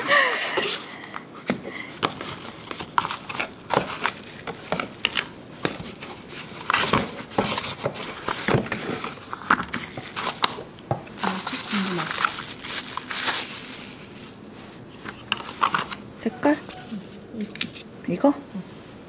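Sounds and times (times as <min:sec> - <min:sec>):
packaging crinkling and rustling: 0:01.9 - 0:16.0.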